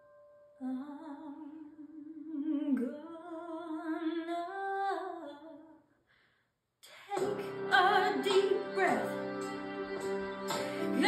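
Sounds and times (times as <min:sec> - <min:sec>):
woman singing unaccompanied: 0:00.6 - 0:05.7, 0:06.9 - 0:09.2
accompanied music: 0:07.2 - 0:11.0.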